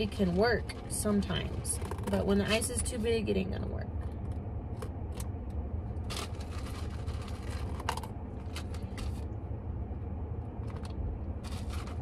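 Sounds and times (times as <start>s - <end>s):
steady low rumble: 0.0s - 12.0s
ice cubes rattling in plastic cup: 6.1s - 9.0s.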